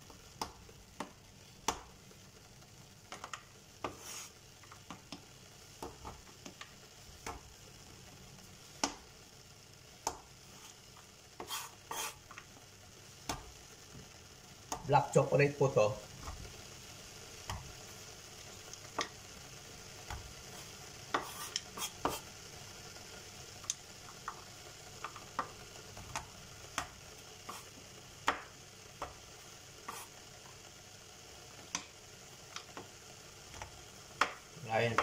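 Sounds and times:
faint hiss: 0:00.0 - 0:35.0
knife chopping chocolate on board: 0:21.1 - 0:22.2, 0:33.6 - 0:35.0.

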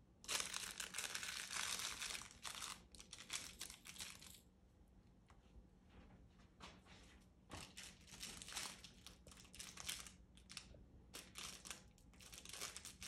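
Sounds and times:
plastic wrapping crinkling: 0:00.2 - 0:04.4, 0:07.6 - 0:13.0.

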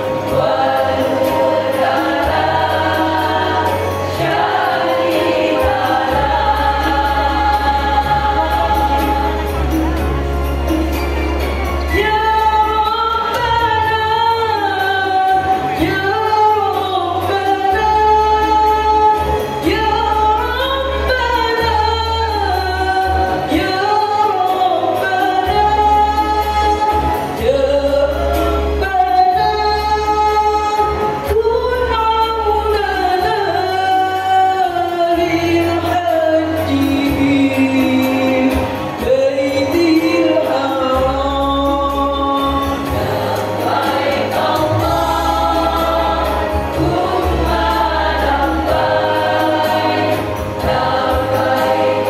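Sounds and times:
women's choir singing: 0:00.0 - 0:10.4, 0:39.8 - 0:52.0.

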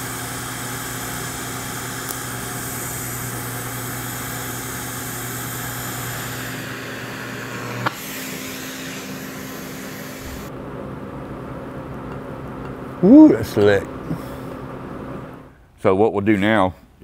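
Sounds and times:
welder click: 0:00.0 - 0:10.5
welding arc hissing: 0:00.0 - 0:10.5.

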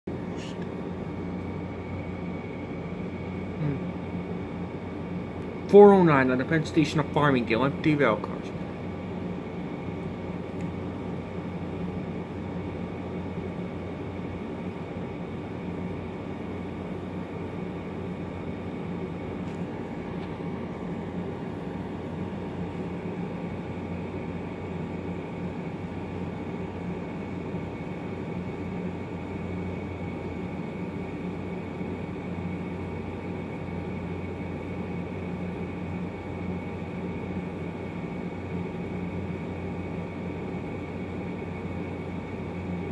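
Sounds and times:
machine hum with low drone: 0:00.0 - 0:42.9.

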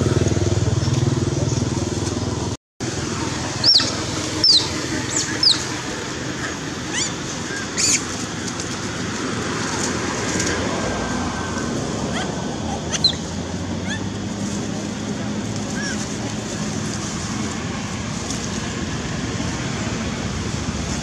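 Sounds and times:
outdoor background rumble: 0:00.0 - 0:21.0
monkey squealing: 0:03.6 - 0:05.8, 0:06.4 - 0:08.1, 0:12.1 - 0:14.2, 0:15.7 - 0:16.1.

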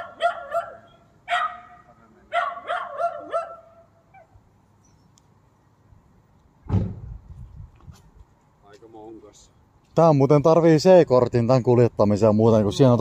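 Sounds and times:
small dog barking: 0:00.0 - 0:04.4.

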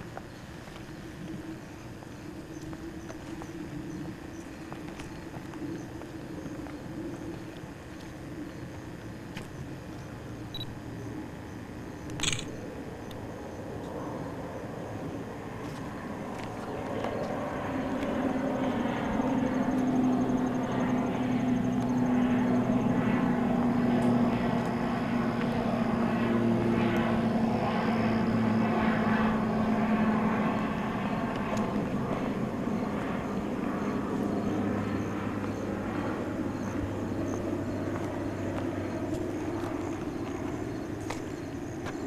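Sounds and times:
low engine drone: 0:00.0 - 0:42.0.

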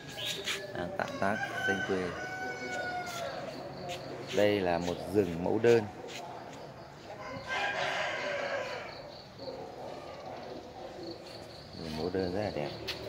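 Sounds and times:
rooster crowing: 0:00.8 - 0:03.6, 0:07.2 - 0:09.0.

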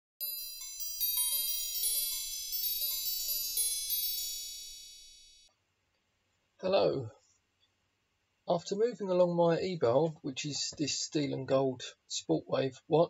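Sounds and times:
chime jingle: 0:00.2 - 0:05.5.

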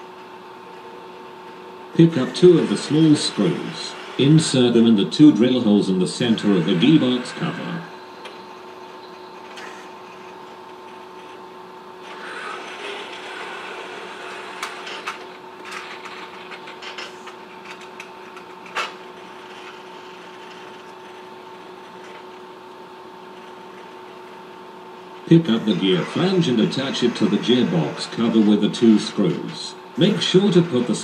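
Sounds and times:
steady hum: 0:00.0 - 0:31.0
robot arm motors whirring: 0:06.2 - 0:07.9, 0:12.0 - 0:15.2, 0:25.3 - 0:31.0.

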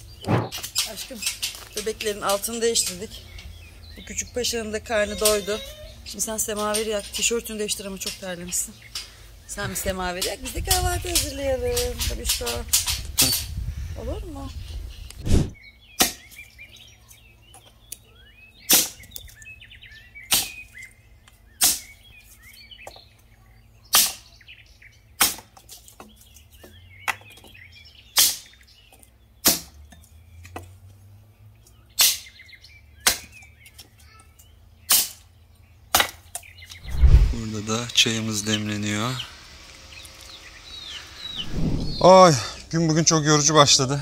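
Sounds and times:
birds chirping faintly: 0:00.0 - 0:44.0
hatchet chopping log: 0:16.0 - 0:16.3, 0:21.6 - 0:21.9, 0:23.9 - 0:24.2, 0:25.2 - 0:25.6, 0:29.4 - 0:29.8, 0:33.0 - 0:33.4, 0:35.9 - 0:36.3.

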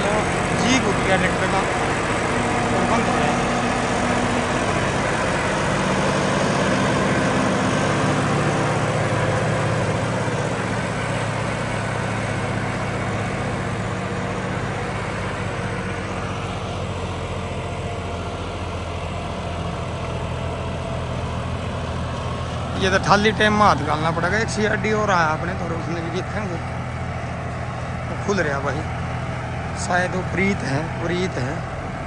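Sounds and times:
tractor diesel engine running: 0:00.0 - 0:32.0.

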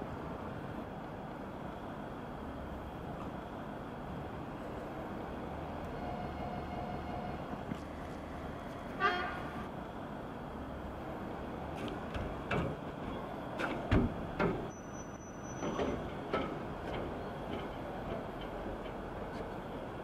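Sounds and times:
distant train rumble: 0:00.0 - 0:20.0
train wheels knocking and clacking: 0:11.7 - 0:19.6.

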